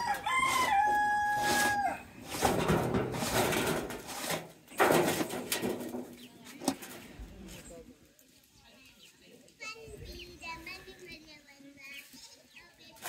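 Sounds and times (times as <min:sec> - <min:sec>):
rooster crowing: 0:00.0 - 0:02.1.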